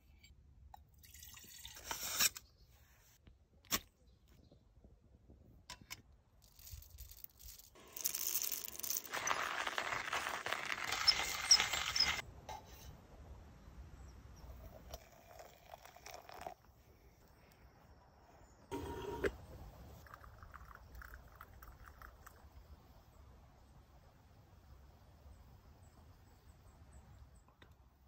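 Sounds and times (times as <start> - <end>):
coffee grinder grinding beans: 7.6 - 12.2.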